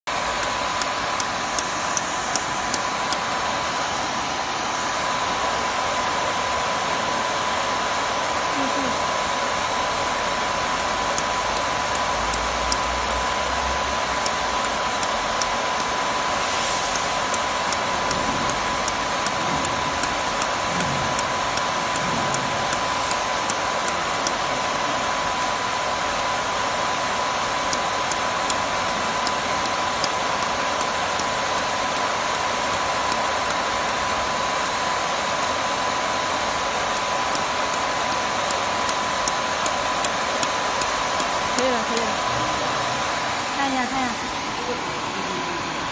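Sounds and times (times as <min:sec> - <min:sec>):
laser welder clicks: 0:00.1 - 0:04.1, 0:10.0 - 0:42.2
faint steady whine: 0:00.1 - 0:45.9
fan hiss: 0:00.1 - 0:45.9.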